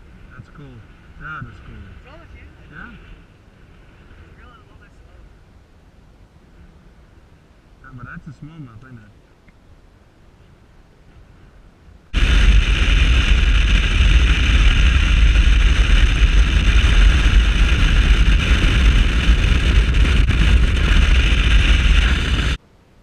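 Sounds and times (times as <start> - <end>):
wind rush on microphone: 0.0 - 5.6, 11.0 - 22.6.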